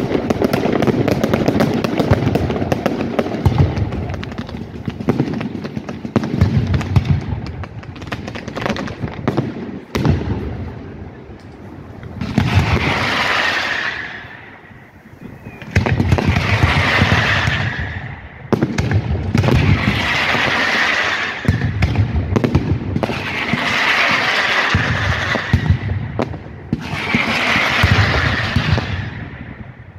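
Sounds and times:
fireworks crackling hiss: 0.0s - 21.8s, 22.4s - 29.9s
firework shell bursts and bangs: 15.4s - 29.6s.

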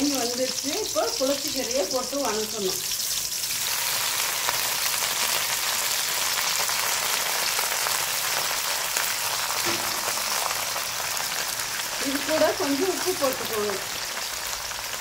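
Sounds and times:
hot oil sizzling and crackling: 0.0s - 15.0s.

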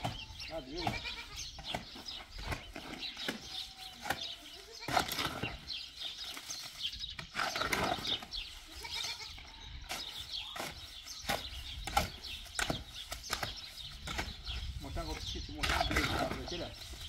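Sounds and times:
livestock bleating: 0.0s - 1.6s, 3.4s - 5.1s, 8.5s - 9.7s
shovel scraping in wheelbarrow: 2.5s - 9.2s, 9.9s - 17.0s.

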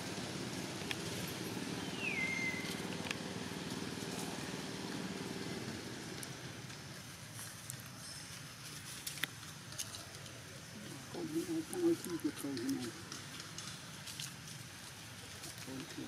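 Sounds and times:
vehicle engine idling: 0.0s - 7.7s.

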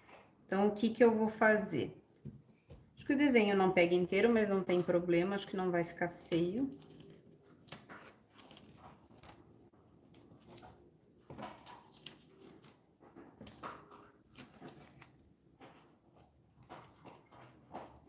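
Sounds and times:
plastic sheet and tape rustling: 4.8s - 18.0s.

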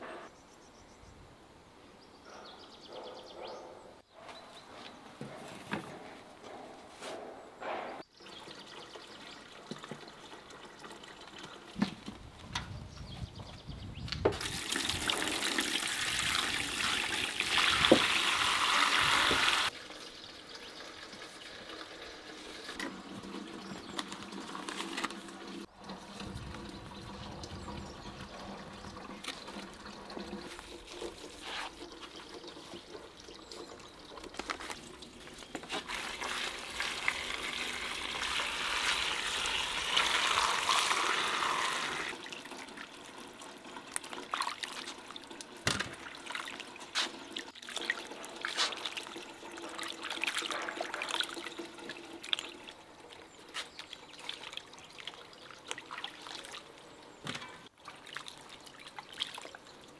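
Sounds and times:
water pouring into a metal basin: 8.2s - 11.8s, 14.3s - 56.8s, 57.7s - 59.9s
small splashes and knocks in water: 43.9s - 59.9s.

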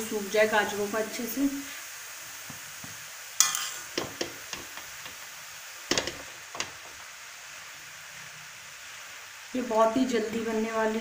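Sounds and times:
faint sizzle: 0.0s - 11.0s
metal spatula scraping a pan: 3.4s - 4.7s.

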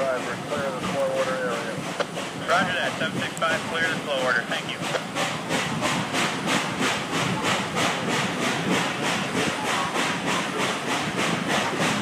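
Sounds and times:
steam locomotive chuffing: 0.0s - 12.0s
train car rumbling on rails: 0.0s - 12.0s.

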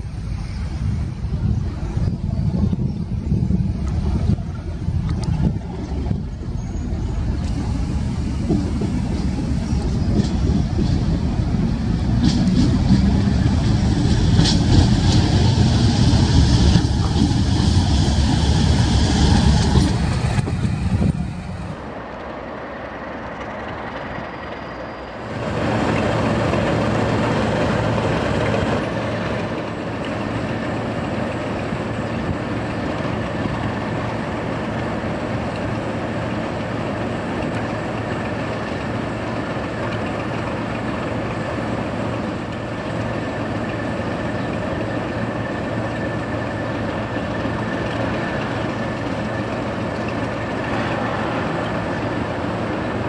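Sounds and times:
diesel locomotive engine running: 0.0s - 53.0s
wheel and rail noise: 0.0s - 53.0s
high wheel squeal: 6.1s - 8.0s, 24.0s - 25.3s.

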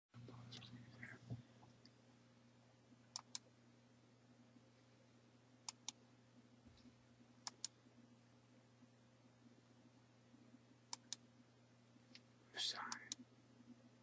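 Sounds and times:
low steady hum: 0.2s - 14.0s
computer mouse double-clicking: 3.2s - 3.4s, 7.5s - 7.7s.

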